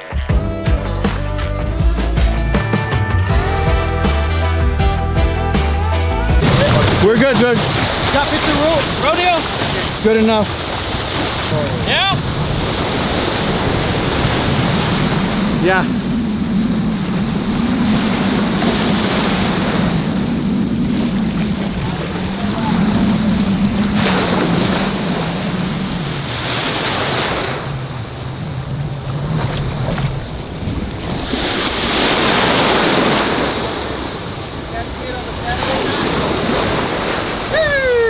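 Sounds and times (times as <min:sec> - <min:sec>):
surf breaking and washing: 0:06.4 - 0:38.0
wind buffeting microphone: 0:06.4 - 0:38.0
low wavering hum: 0:13.4 - 0:31.3.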